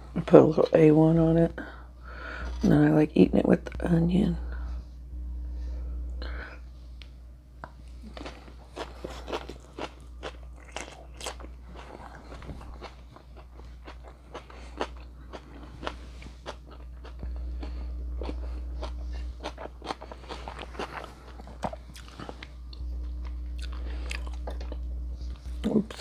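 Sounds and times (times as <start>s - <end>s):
steady low hum: 0.0s - 26.0s
person chewing food: 7.6s - 25.7s.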